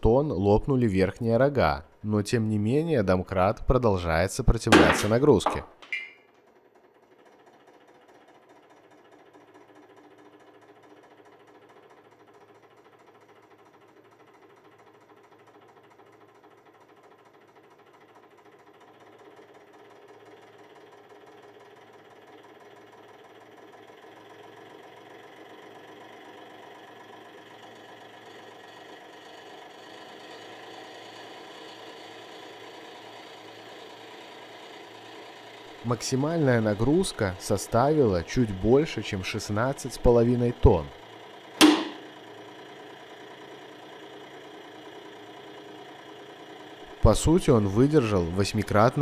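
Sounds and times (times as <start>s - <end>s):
hydraulic pump motor humming: 3.5s - 49.0s
sharp metallic crack: 41.6s - 42.1s.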